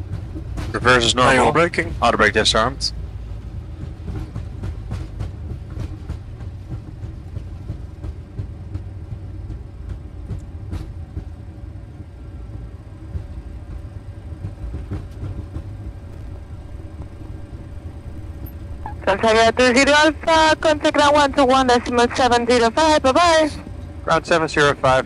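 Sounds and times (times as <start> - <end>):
low rumble of wheels on runway: 0.0 - 25.0
faint steady hum: 13.3 - 25.0.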